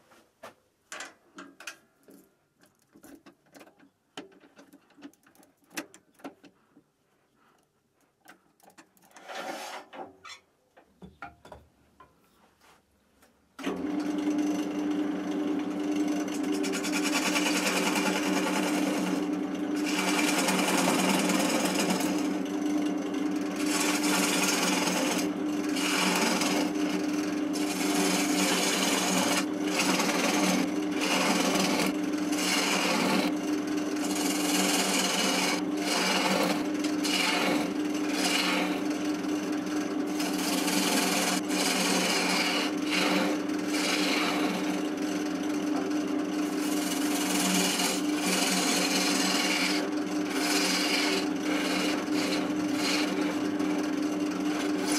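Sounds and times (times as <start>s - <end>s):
lathe humming: 13.7s - 54.9s
gouge rasping into wood: 16.7s - 22.4s, 23.4s - 33.4s, 34.0s - 38.9s, 40.1s - 44.7s, 46.5s - 53.5s, 54.5s - 54.9s.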